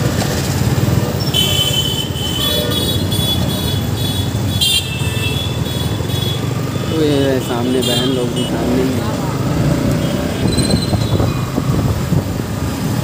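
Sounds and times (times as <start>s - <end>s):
motorcycle engine: 0.0s - 13.0s
road rumble: 0.0s - 13.0s
high-pitched horns tooting: 1.2s - 6.5s.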